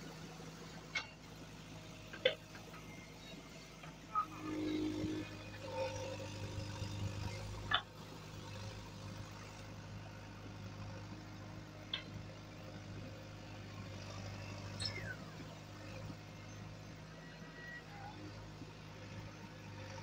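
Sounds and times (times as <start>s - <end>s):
diesel engine under load: 0.0s - 20.0s
short high squeaks: 14.7s - 15.2s.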